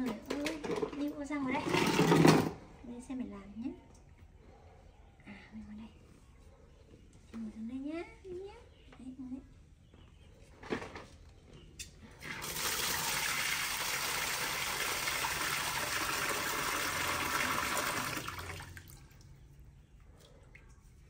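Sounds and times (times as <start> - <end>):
tap water pouring into basin: 12.2 - 19.3.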